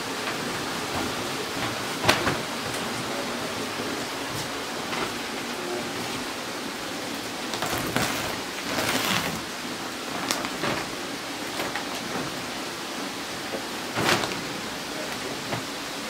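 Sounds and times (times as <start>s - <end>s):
plastic sacks crinkling: 7.5s - 9.5s.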